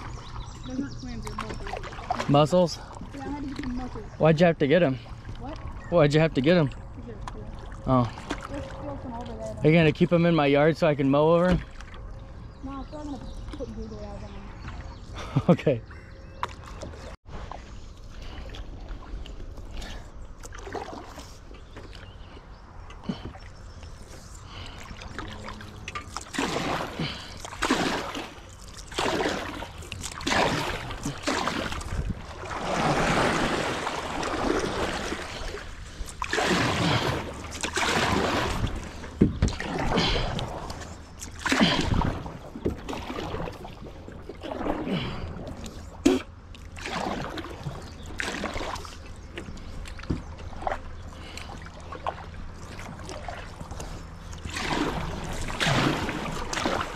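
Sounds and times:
paddle strokes in water: 0.0 - 4.2, 16.3 - 56.9.

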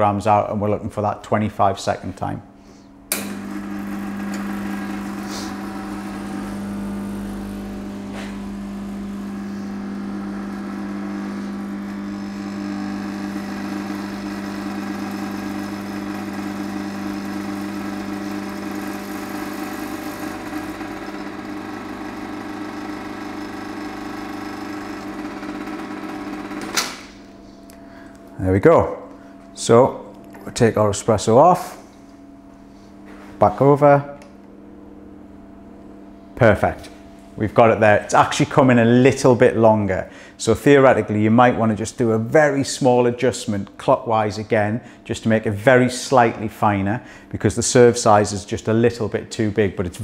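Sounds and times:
espresso machine pump buzzing: 2.9 - 28.4
machine switch click: 3.1 - 3.4.

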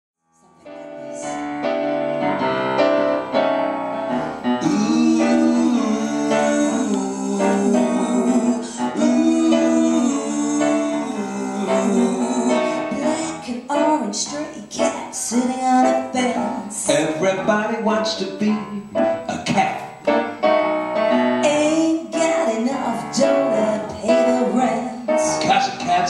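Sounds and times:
jazzy grand piano: 0.2 - 26.0
person singing: 4.6 - 19.9.

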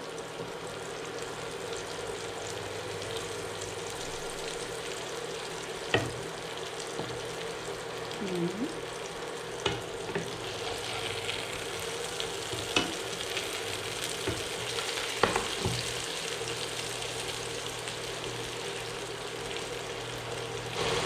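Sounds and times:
prawns sizzling in a frying pan: 0.0 - 21.0
spatula knocking and scraping pan: 15.2 - 15.9.

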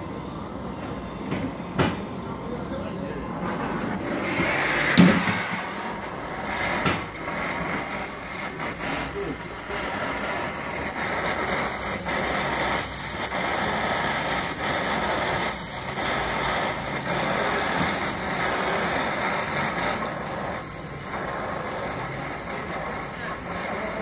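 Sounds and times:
welding torch flame hissing: 0.0 - 24.0.

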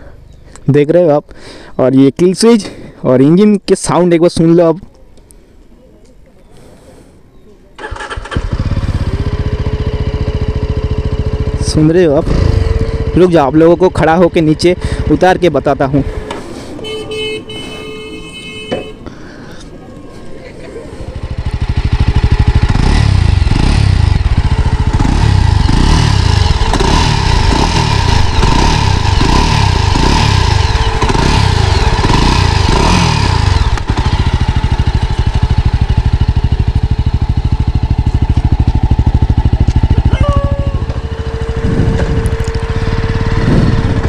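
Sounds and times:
motorcycle engine revving and idling: 7.8 - 16.3, 21.0 - 44.0.

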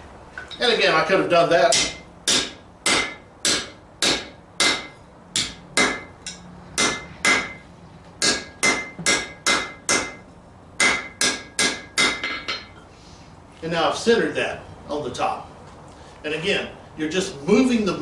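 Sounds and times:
anvil ringing: 1.7 - 7.6, 8.2 - 10.2
hammer striking steel on anvil: 1.7 - 7.6, 8.2 - 12.8.

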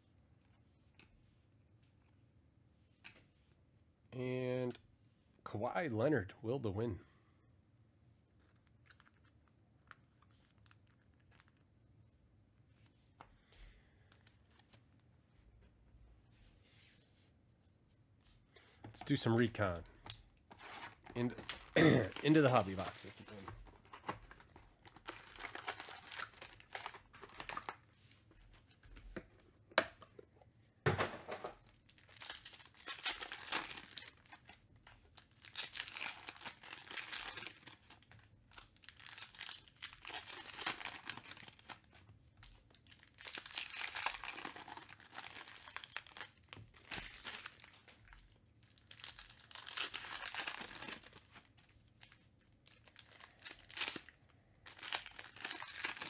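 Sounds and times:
foil wrappers tearing and crinkling: 20.9 - 24.0, 24.8 - 27.8, 31.8 - 34.6, 35.2 - 42.0, 42.7 - 56.0.

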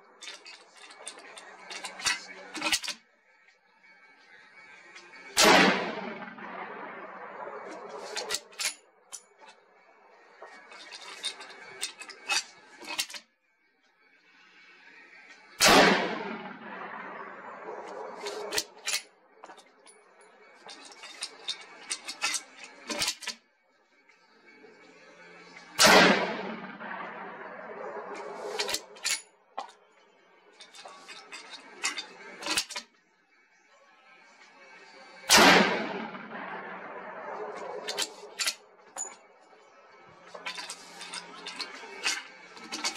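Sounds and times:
rifle shot: 5.4 - 8.4, 15.6 - 18.6, 25.8 - 29.0, 35.3 - 38.1.

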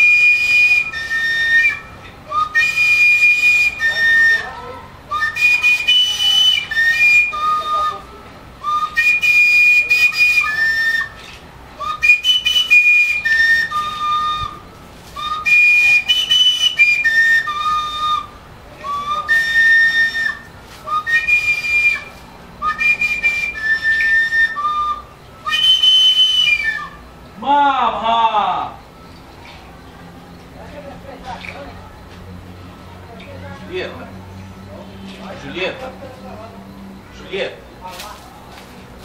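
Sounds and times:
small flute playing: 0.0 - 27.4.

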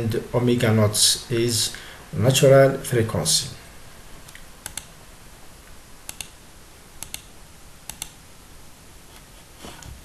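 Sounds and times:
faint steady hiss: 0.0 - 10.0
computer mouse clicking: 4.3 - 4.9, 6.1 - 6.4, 7.0 - 7.3, 7.9 - 8.2.

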